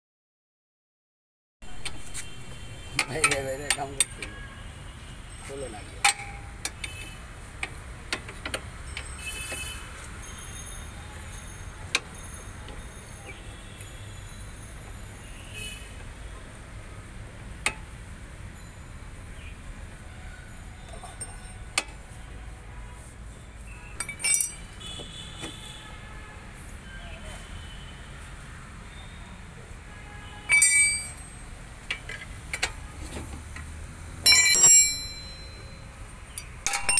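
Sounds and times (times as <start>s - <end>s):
socket wrench clinking on metal: 2.9s - 4.4s, 6.0s - 9.4s, 24.0s - 24.9s, 30.5s - 32.8s, 34.2s - 36.9s
metal clanks: 6.0s - 9.2s, 24.0s - 24.9s, 30.5s - 33.3s, 34.2s - 35.7s, 36.3s - 36.9s.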